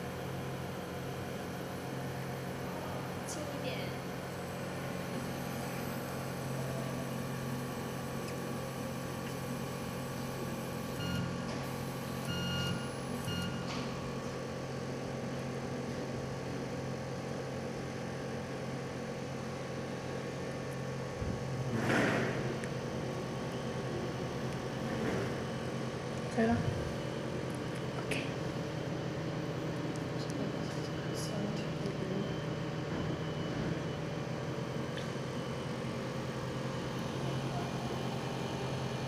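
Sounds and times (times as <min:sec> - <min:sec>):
short electronic beeps: 0:11.0 - 0:11.3, 0:12.2 - 0:13.7.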